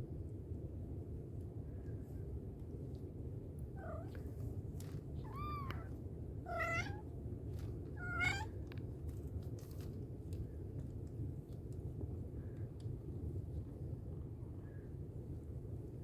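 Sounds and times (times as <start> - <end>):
steady low rumble: 0.0 - 16.0
cat mewing: 5.2 - 5.9, 6.5 - 7.0, 8.0 - 8.6.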